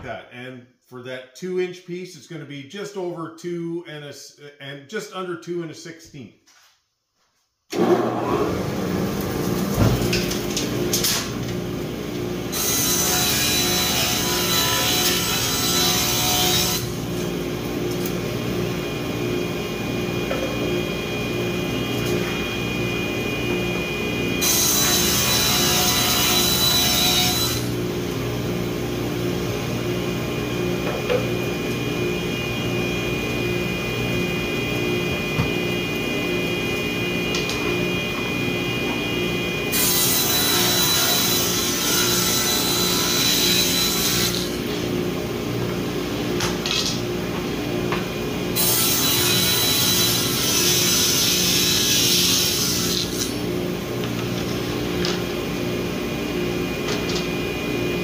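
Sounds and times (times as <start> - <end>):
table saw running: 7.7 - 45.8, 46.6 - 58.0.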